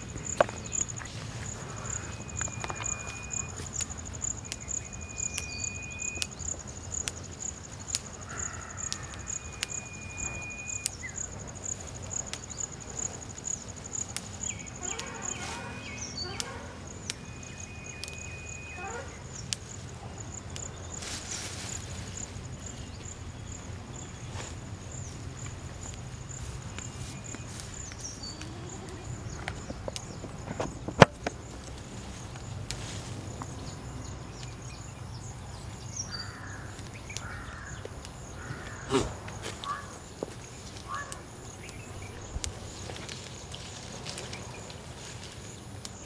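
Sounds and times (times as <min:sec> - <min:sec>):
leafy rustling: 0:00.0 - 0:34.6, 0:38.4 - 0:46.0
high pulsing insect trill: 0:00.0 - 0:46.0
branches snapping: 0:00.2 - 0:10.1, 0:17.8 - 0:18.4, 0:36.6 - 0:46.0
flat whistle-like tone: 0:01.7 - 0:03.6, 0:04.6 - 0:06.4, 0:09.4 - 0:11.2, 0:17.0 - 0:19.1.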